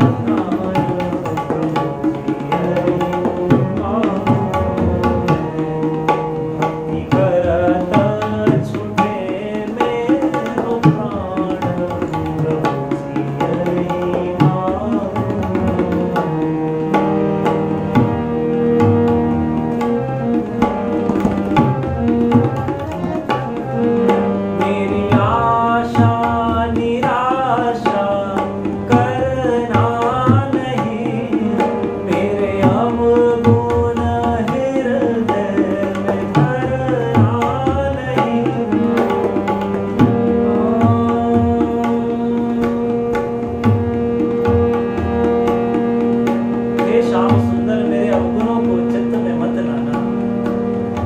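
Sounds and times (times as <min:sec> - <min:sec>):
harmonium sustained notes: 0:00.0 - 0:51.0
tabla rhythm: 0:00.0 - 0:51.0
ornamented sliding melody: 0:01.9 - 0:07.1, 0:12.2 - 0:25.8.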